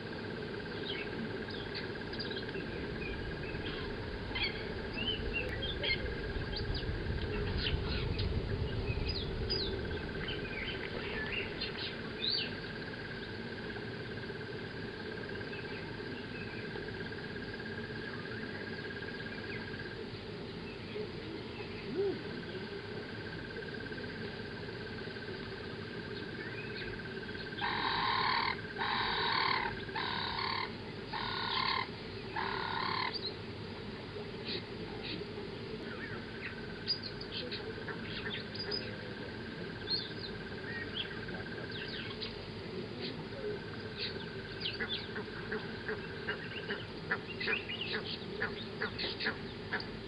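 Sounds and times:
birds chirping: 0.0s - 13.4s, 26.0s - 33.4s, 34.3s - 50.0s.

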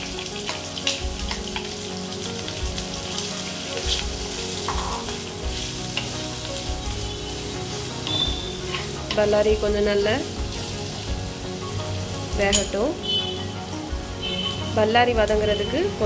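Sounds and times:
onions sizzling in hot oil: 0.0s - 16.0s
wooden spatula scraping pot: 4.6s - 5.2s, 8.6s - 9.3s.

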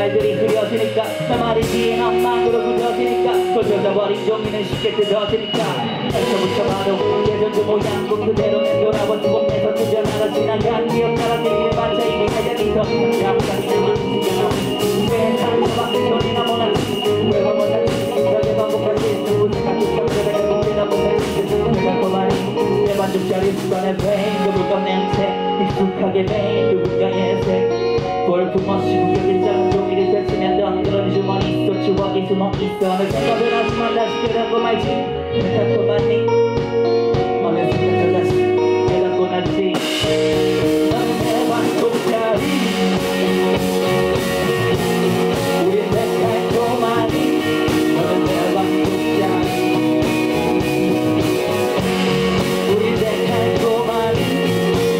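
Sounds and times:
bass guitar: 0.0s - 54.9s
drums: 0.0s - 54.9s
electric guitar: 0.0s - 54.9s.

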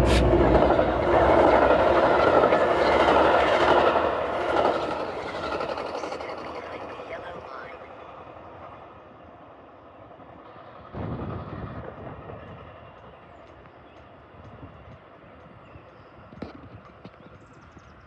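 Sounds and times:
rush of noise: 0.0s - 7.4s
train rumble: 0.0s - 18.0s.

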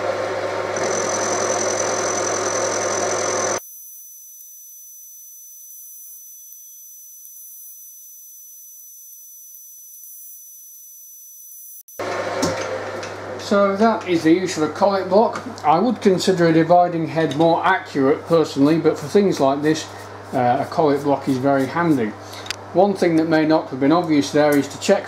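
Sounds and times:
high whine: 0.0s - 14.9s
milling machine cutting steel: 0.7s - 3.6s.

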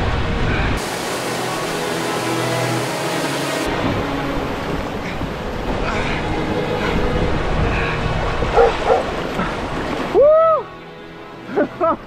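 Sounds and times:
whitewater rapids rushing: 0.0s - 12.0s
dog barking: 8.6s - 9.0s.

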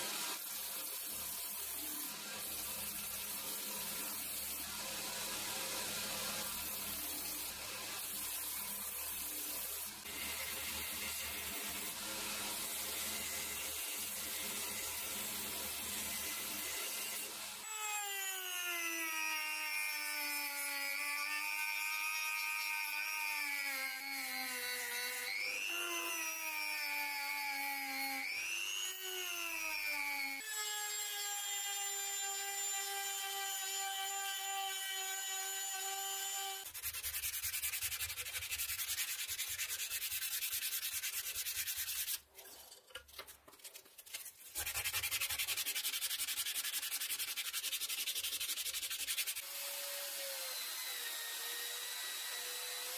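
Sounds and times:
sandpaper rubbing on wood: 36.6s - 42.3s, 43.1s - 49.5s.

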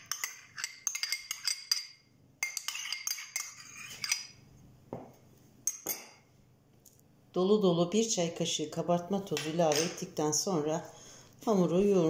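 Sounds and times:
metal spoon clinking on cup: 0.0s - 4.3s, 5.7s - 6.2s, 9.4s - 10.0s.

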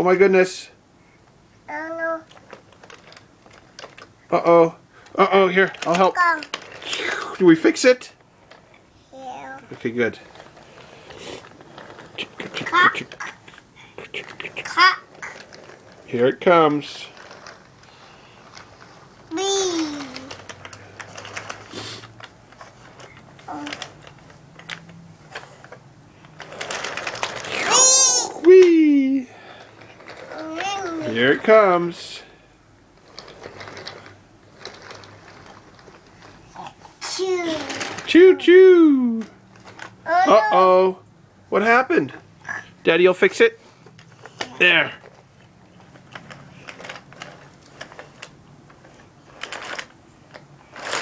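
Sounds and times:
wooden toy train pieces clacking: 2.2s - 4.2s, 5.0s - 8.8s, 9.4s - 32.3s, 33.0s - 40.7s, 41.6s - 51.0s
child vocal sound: 19.3s - 20.4s, 23.5s - 23.9s, 40.1s - 40.6s.

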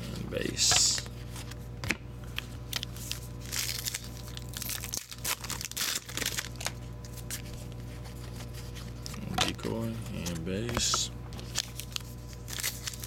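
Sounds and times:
steady low hum: 0.0s - 13.0s
foil wrapper crinkling and tearing: 2.4s - 10.5s, 11.3s - 13.0s.

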